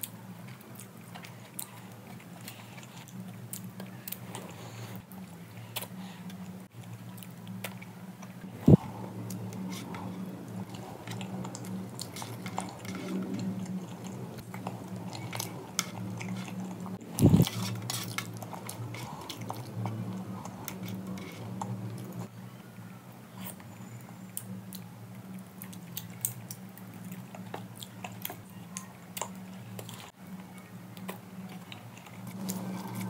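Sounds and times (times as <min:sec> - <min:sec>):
wet chewing: 0:00.0 - 0:22.3, 0:24.3 - 0:30.2
steady low hum: 0:00.0 - 0:33.0.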